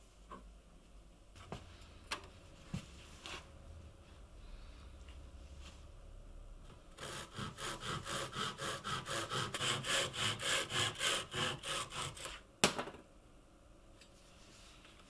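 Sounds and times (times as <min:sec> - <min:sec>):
hand saw cutting wood: 0:07.0 - 0:12.4.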